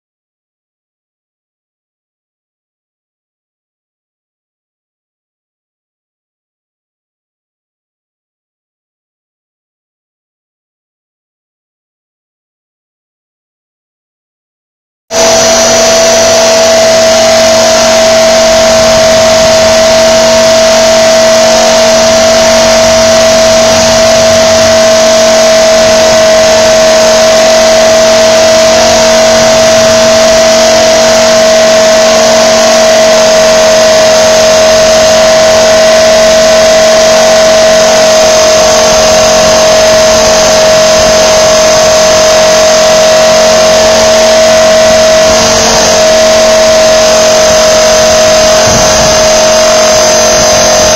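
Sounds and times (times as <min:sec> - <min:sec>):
rc helicopter motor whine: 0:15.2 - 0:50.9.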